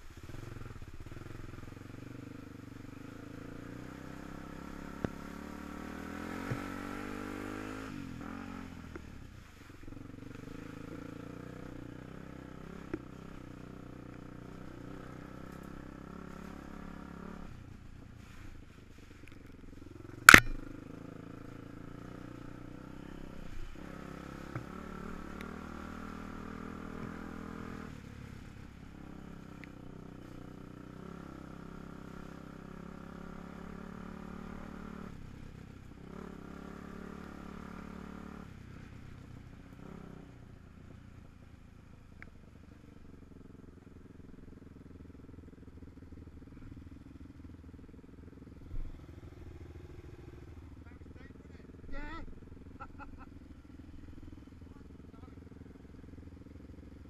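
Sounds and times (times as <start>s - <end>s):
quad bike engine revving: 0.2s - 9.2s, 10.0s - 17.5s, 20.0s - 38.9s, 39.8s - 40.3s, 48.4s - 56.1s.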